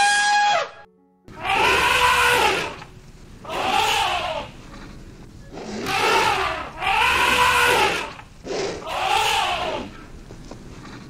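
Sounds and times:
elephant trumpeting: 1.4 - 10.2.

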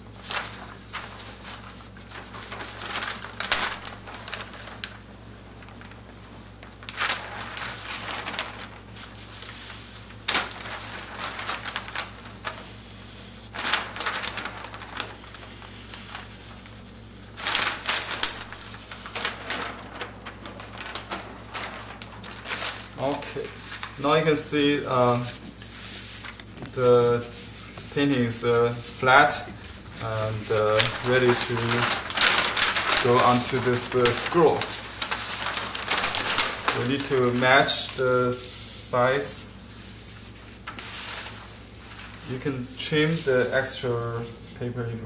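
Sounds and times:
paper sheets rustling and crackling: 0.0 - 45.0.

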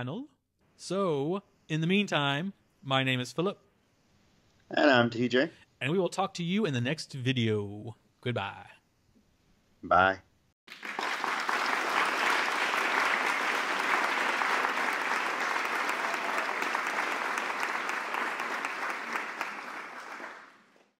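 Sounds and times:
audience applause: 10.7 - 21.0.

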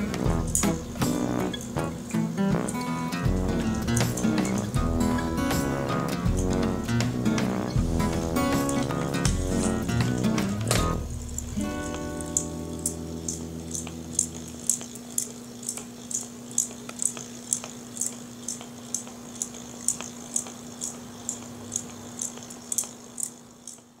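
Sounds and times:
toy motor humming: 11.7 - 24.0.

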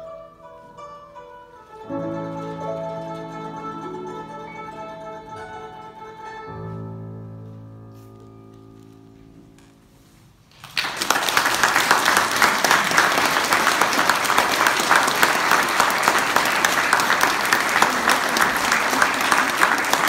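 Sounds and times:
audience applauding: 10.5 - 20.0.

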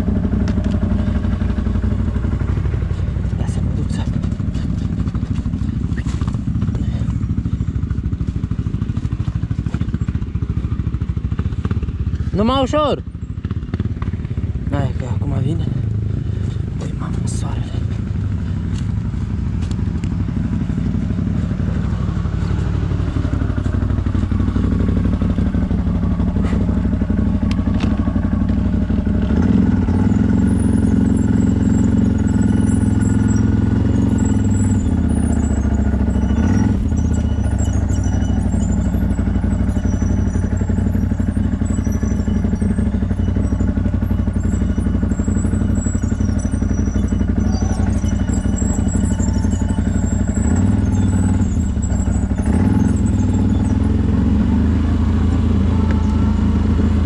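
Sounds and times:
engine running at low revs: 0.0 - 57.0.

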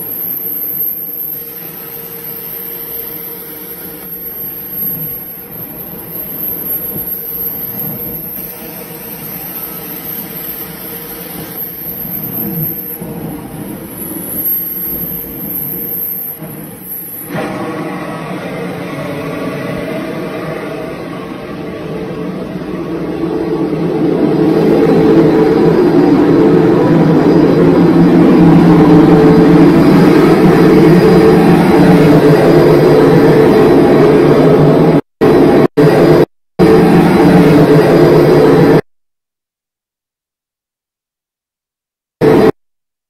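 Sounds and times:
carpet extraction vacuum humming: 0.0 - 38.8.

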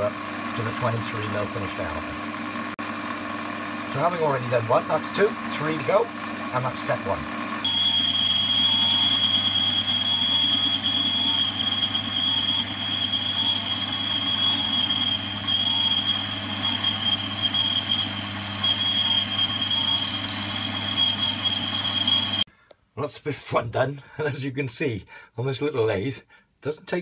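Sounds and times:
lathe motor hum: 0.1 - 22.5
lathe drill cutting with high squeal: 7.6 - 22.5.

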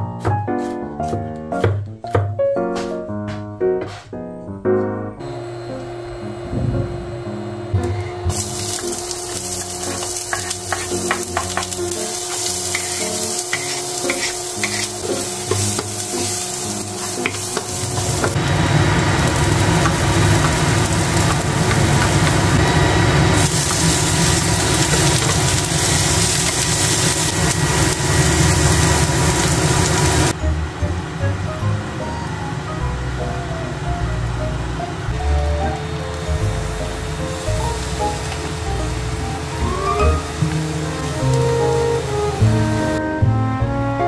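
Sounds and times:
onion and garlic sizzling: 7.2 - 43.0.

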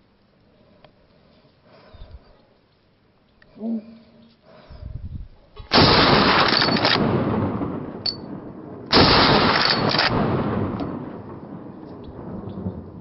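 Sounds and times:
rifle shots with long echo: 5.7 - 13.0.

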